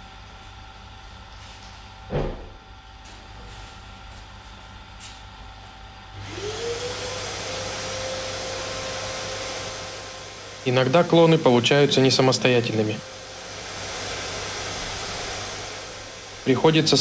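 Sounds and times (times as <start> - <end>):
loud hiss: 10.1 - 17.0.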